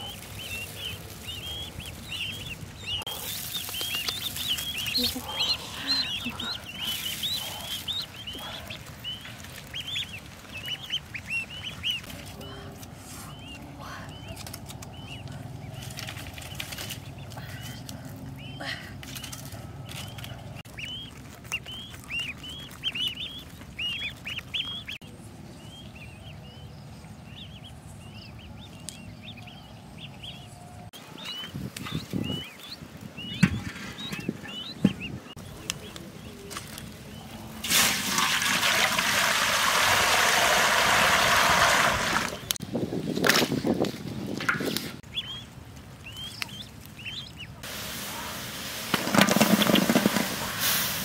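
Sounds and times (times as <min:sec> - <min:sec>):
ducklings peeping: 0:00.0 - 0:37.6, 0:42.2 - 0:42.7, 0:43.6 - 0:48.4
water pouring into a wok: 0:37.6 - 0:42.4.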